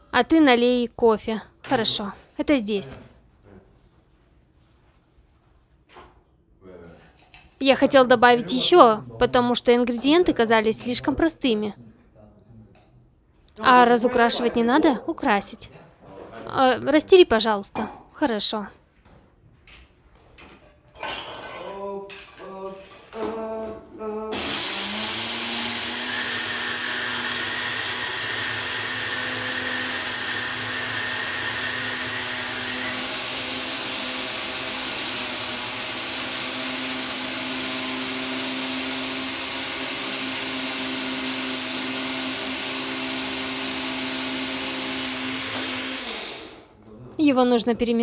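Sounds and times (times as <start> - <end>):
blender motor running: 24.3 - 46.7.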